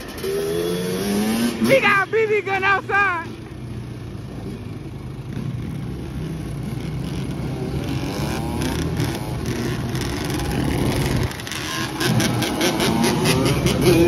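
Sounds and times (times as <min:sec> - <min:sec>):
engine revving: 0:00.0 - 0:02.0, 0:05.7 - 0:14.0
atv and dirt bike engines: 0:00.0 - 0:14.0.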